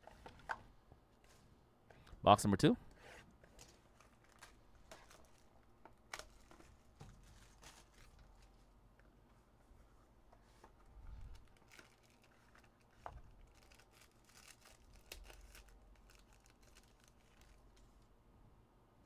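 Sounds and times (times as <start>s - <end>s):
foil pack crinkling: 3.5s - 8.7s, 11.2s - 17.8s.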